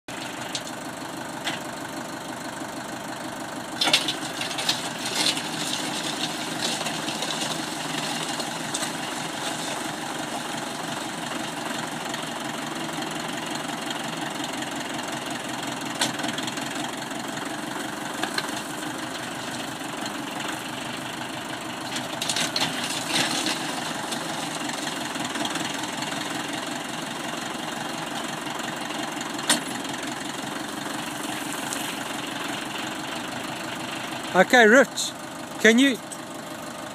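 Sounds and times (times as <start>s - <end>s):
tractor engine running: 0.1s - 36.9s
auger clattering and scraping: 3.7s - 11.6s, 17.7s - 20.8s, 21.4s - 26.4s, 28.9s - 34.3s.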